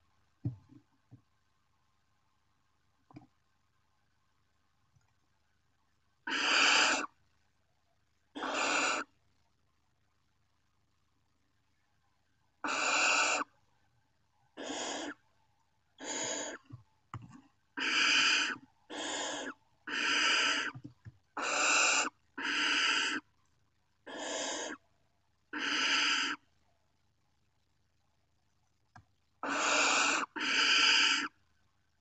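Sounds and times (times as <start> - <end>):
owl chicks hissing calls: 6.2 - 7.2, 8.4 - 9.1, 12.6 - 13.6, 14.6 - 15.2, 16.0 - 16.7, 17.8 - 20.8, 21.4 - 23.3, 24.0 - 24.8, 25.5 - 26.4, 29.4 - 31.4.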